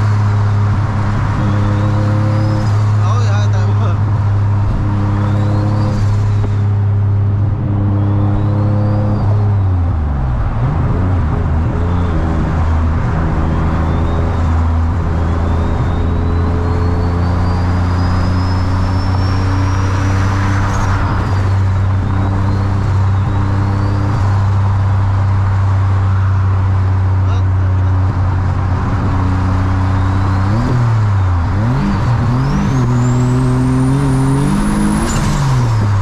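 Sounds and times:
road noise: 0.0s - 36.0s
faint high whistle: 15.2s - 21.4s.

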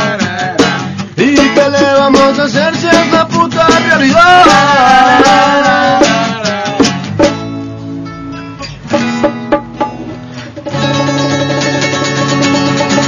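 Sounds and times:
person singing: 0.0s - 7.0s
strummed acoustic guitar: 0.0s - 13.0s.

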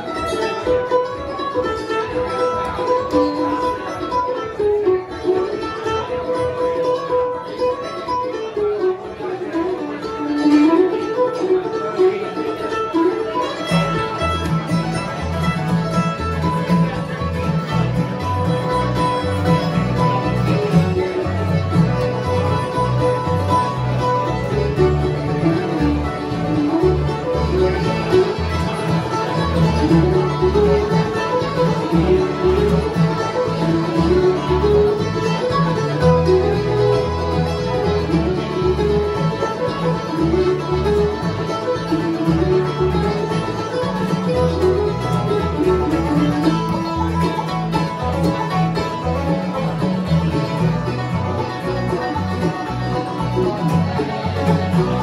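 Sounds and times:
acoustic guitar: 0.0s - 55.0s
banjo: 0.0s - 55.0s
bluegrass band playing: 0.0s - 55.0s
mandolin: 0.0s - 55.0s
upright bass: 10.4s - 55.0s
accordion: 10.7s - 55.0s.

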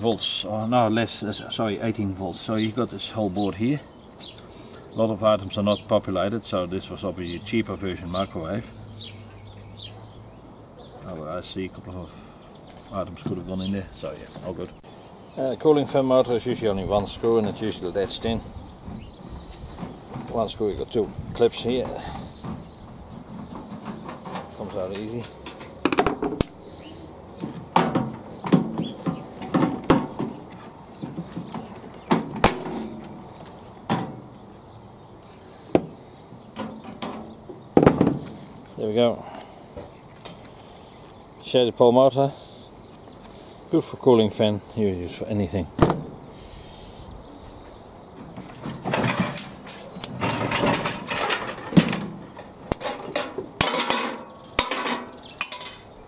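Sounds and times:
scraping and rattling panels: 16.4s - 26.4s, 27.3s - 34.4s, 48.2s - 56.0s.

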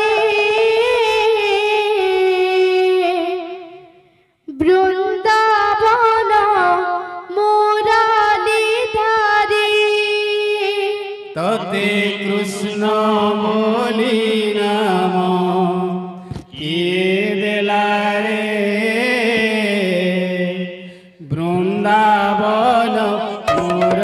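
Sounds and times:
woman singing: 0.0s - 3.7s, 4.5s - 11.6s.

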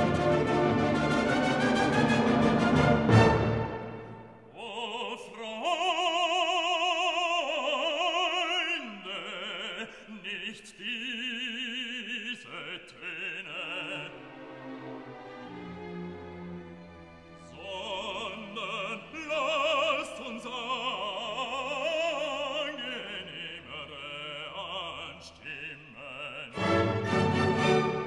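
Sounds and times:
orchestral music: 0.0s - 4.5s, 13.7s - 20.5s, 26.5s - 28.0s
opera singer with vibrato: 4.5s - 14.4s, 17.5s - 26.7s.

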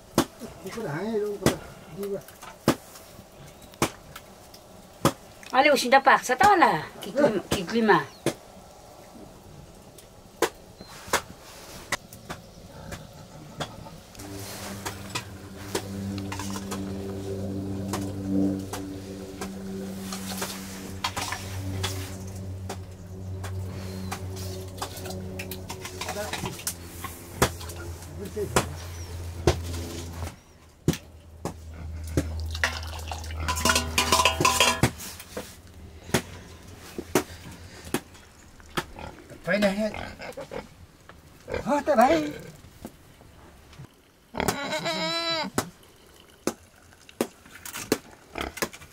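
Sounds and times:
wood fire crackling: 0.0s - 44.4s, 45.6s - 48.9s
metal pots and ladle clinking: 32.5s - 35.2s.

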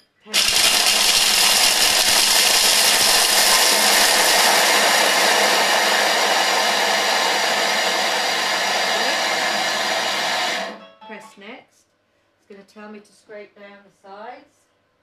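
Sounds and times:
blender whirring grind: 0.3s - 10.8s.

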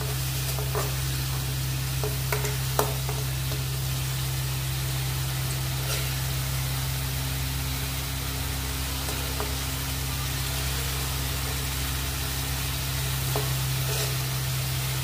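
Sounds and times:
masala sizzling in oil: 0.0s - 15.0s
spoon scraping: 13.3s - 14.4s.

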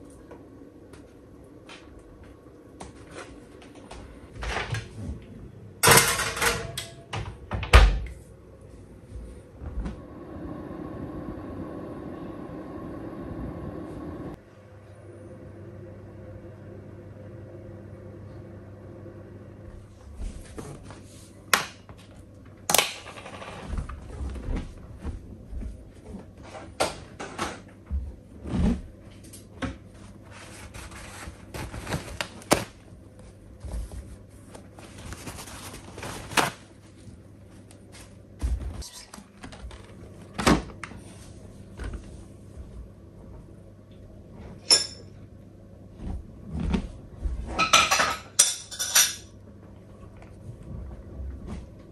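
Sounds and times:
steady low hum: 0.0s - 22.7s
cookware clattering: 47.6s - 49.3s.

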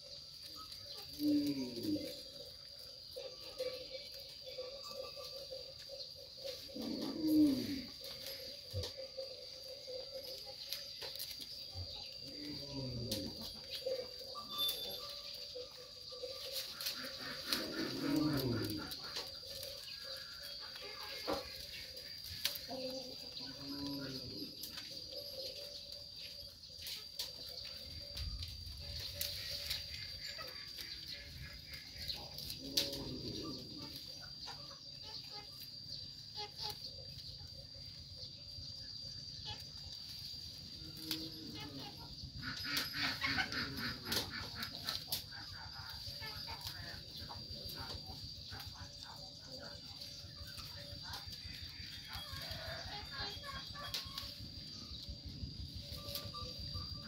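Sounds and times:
low animal call: 0.5s - 3.8s, 4.5s - 10.3s, 11.7s - 26.4s, 27.7s - 35.6s
leaves rustling and twigs snapping: 6.4s - 9.4s, 10.0s - 34.2s, 39.8s - 41.6s, 42.5s - 49.1s, 55.8s - 56.3s.

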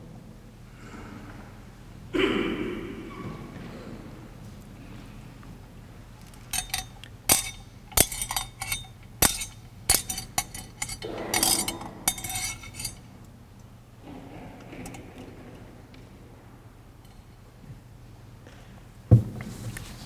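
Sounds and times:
sharp clinks of metal or glass: 6.5s - 13.0s.

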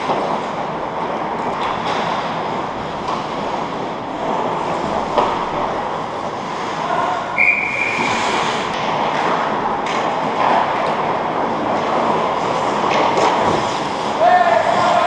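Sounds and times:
arena background noise: 0.0s - 15.0s
skates rushing on ice: 0.0s - 15.0s
faint distant shouts: 14.2s - 15.0s.

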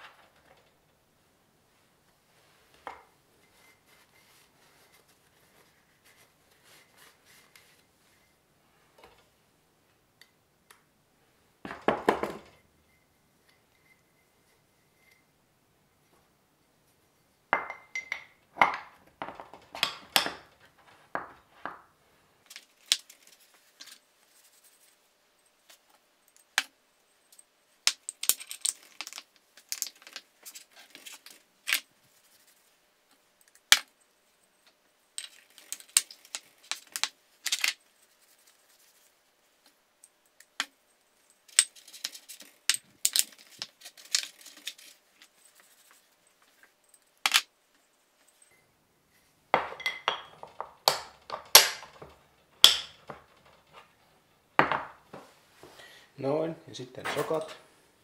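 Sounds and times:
metal parts clinking and knocking: 27.3s - 31.8s, 35.1s - 37.8s, 41.3s - 47.5s, 49.6s - 55.0s.

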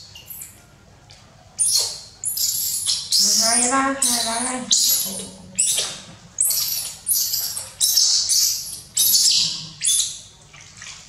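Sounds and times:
baby monkey shrieking: 1.6s - 10.2s.

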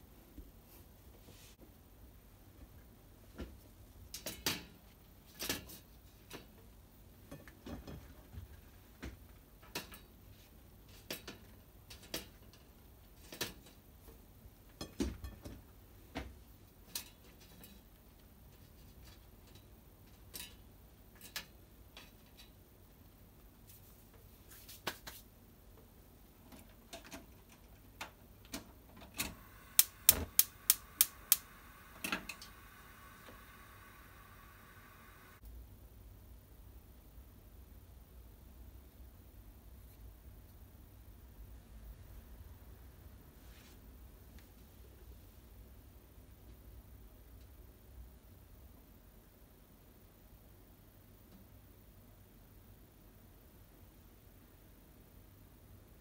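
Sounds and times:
gas burner hissing: 29.2s - 35.4s
gas igniter clicking: 29.3s - 34.1s.

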